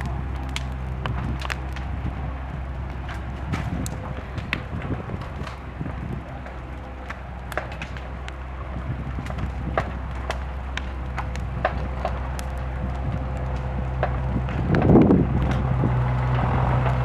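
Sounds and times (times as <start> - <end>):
bonfire crackling and popping: 0.0 - 17.0
excavator engine drone: 0.0 - 17.0.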